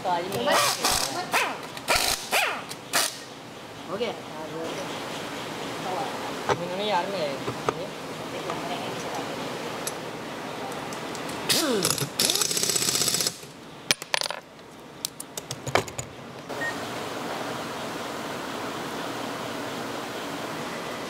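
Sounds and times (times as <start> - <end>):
pneumatic impact wrench hammering: 0.5 - 3.3, 11.5 - 13.5.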